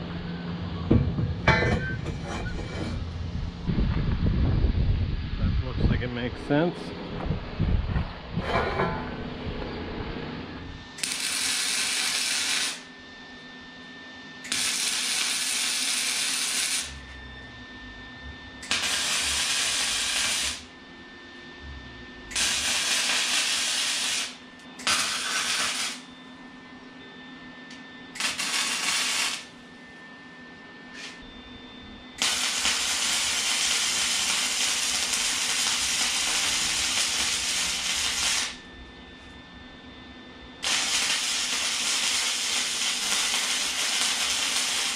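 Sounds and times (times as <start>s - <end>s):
arc welder hissing: 10.7s - 12.9s, 14.4s - 17.1s, 18.6s - 20.7s, 22.3s - 26.1s, 28.1s - 29.6s, 30.9s - 31.2s, 32.2s - 38.7s, 40.6s - 44.9s.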